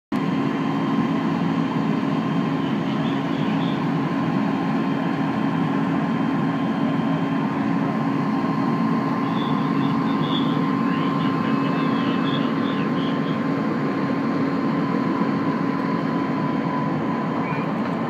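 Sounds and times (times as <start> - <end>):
diesel engines idling: 0.2 - 18.0
thin steady whine: 0.2 - 18.0.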